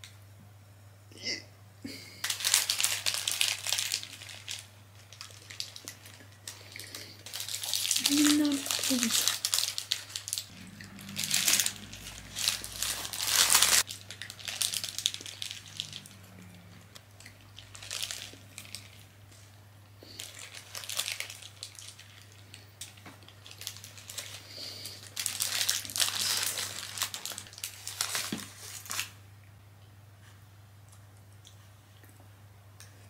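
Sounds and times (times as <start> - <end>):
paper wrapper crinkling: 2.2 - 16.3, 17.0 - 29.2
chewing: 10.4 - 19.0.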